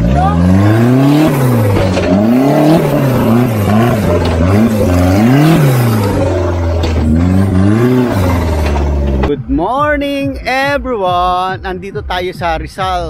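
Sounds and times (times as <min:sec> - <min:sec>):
truck engine revving: 0:00.0 - 0:09.3.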